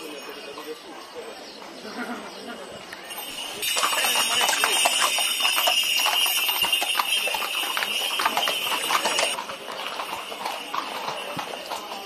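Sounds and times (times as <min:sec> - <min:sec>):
horse hooves clip-clopping on pavement: 0:03.0 - 0:12.0.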